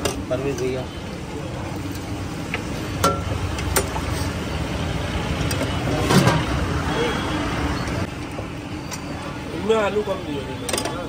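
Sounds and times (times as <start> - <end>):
passing traffic: 0.9 - 9.7.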